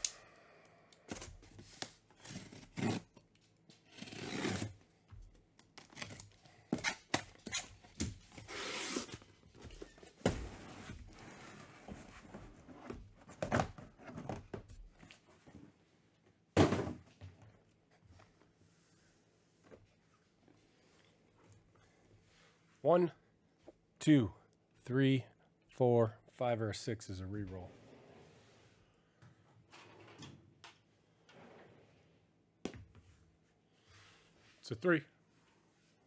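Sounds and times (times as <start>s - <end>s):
packing tape ripping: 3.8s - 4.7s
box thumping down: 16.6s - 17.0s.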